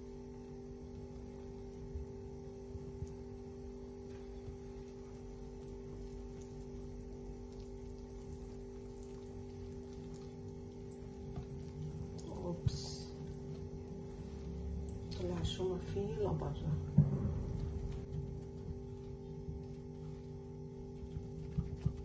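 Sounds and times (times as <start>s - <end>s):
steady hum: 0.0s - 22.0s
whisk mixing wet batter: 2.7s - 16.5s.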